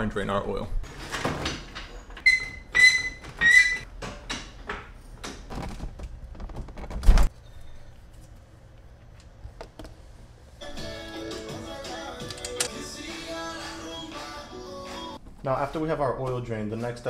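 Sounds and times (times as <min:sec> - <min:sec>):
car jack squeaking and clunking: 0:01.1 - 0:04.8.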